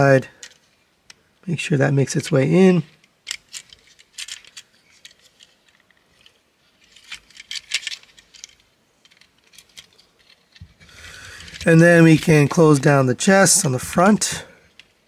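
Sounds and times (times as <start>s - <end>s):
plastic toy parts clicking: 3.0s - 12.9s.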